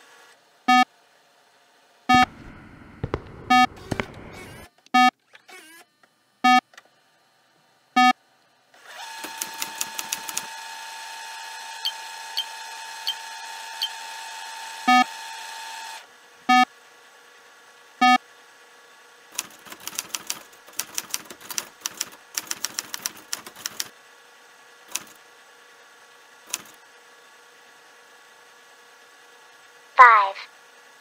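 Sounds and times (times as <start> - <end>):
short loud beeps: 2.1 - 2.3, 3.4 - 5.1
steady electronic hum: 2.1 - 4.7
keyboard typing clicks: 19.7 - 23.9.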